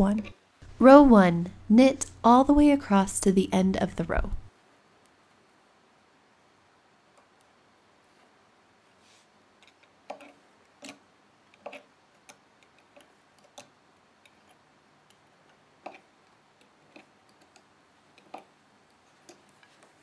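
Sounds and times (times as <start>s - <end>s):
knitting tool clicking on metal pegs: 15.8s - 18.5s.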